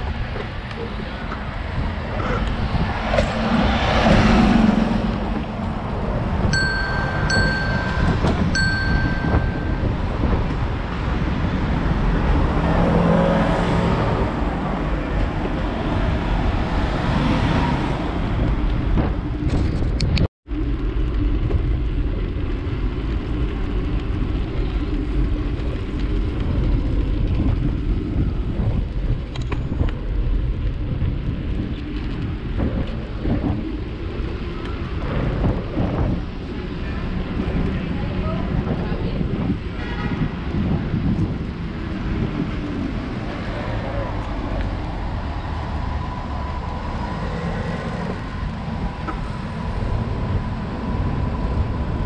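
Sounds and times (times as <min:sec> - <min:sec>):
wind buffeting microphone: 0:00.0 - 0:52.0
electronic chime tones: 0:06.6 - 0:09.9.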